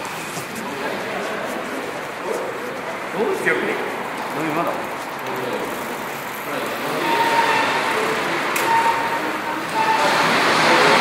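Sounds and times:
faint distant voices: 0.0s - 11.0s
traffic noise: 0.0s - 11.0s.

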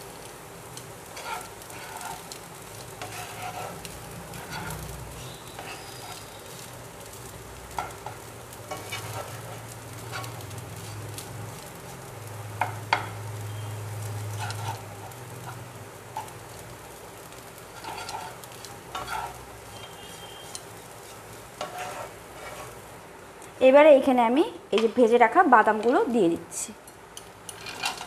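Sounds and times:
light frying sizzle: 0.0s - 28.0s
spatula scraping frying pan: 1.0s - 6.7s, 7.7s - 11.2s, 14.1s - 16.6s, 17.3s - 22.9s, 27.4s - 28.0s.

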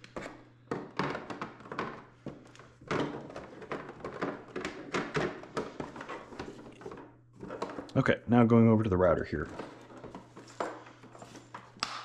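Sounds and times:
plastic knocks and clicks: 0.7s - 7.9s.

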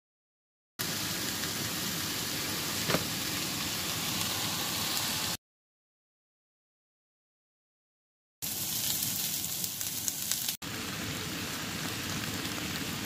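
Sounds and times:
peppers sizzling in oil: 0.8s - 5.4s, 8.4s - 13.0s.

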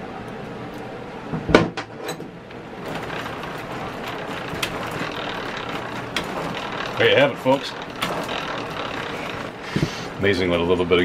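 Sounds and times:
clunk and clicks: 1.4s - 9.9s
wheels and gears whirring rattle: 2.0s - 10.7s.

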